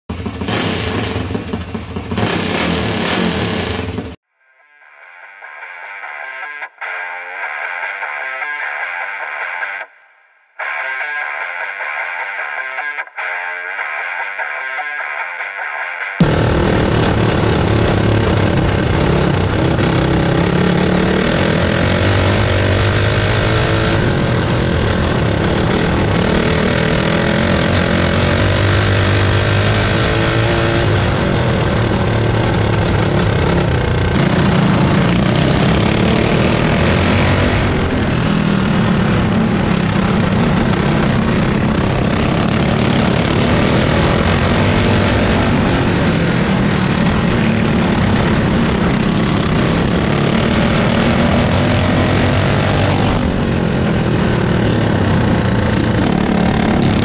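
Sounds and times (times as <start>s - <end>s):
other kart engines: 0.0s - 4.2s, 16.2s - 57.0s
kart engine revving: 0.1s - 4.2s, 16.2s - 57.0s.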